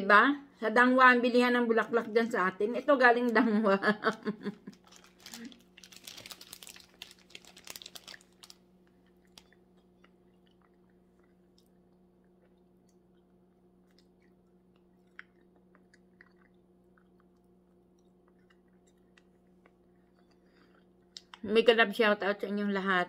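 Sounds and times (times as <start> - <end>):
steady low hum: 0.0 - 23.0
person chewing food: 4.6 - 21.4.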